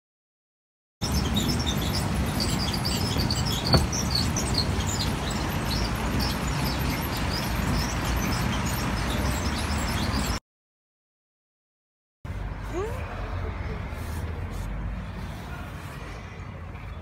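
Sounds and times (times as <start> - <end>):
small birds chirping: 1.0 - 10.4
street traffic rumble: 1.0 - 10.4, 12.3 - 17.0.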